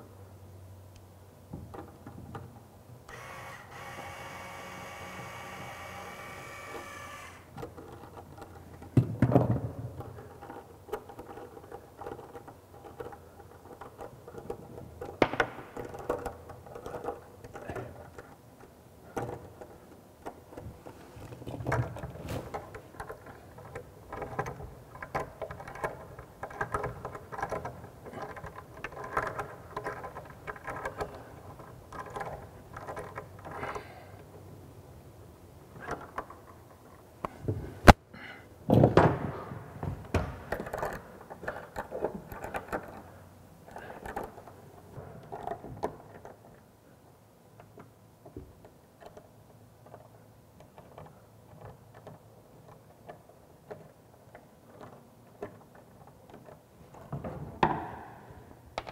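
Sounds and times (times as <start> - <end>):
tools clicking and scraping on pipes: 10.1 - 34.4.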